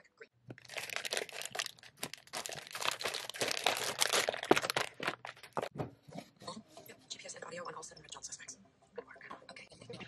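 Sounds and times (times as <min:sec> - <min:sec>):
wrapper crinkling and crackling: 0:00.5 - 0:05.7.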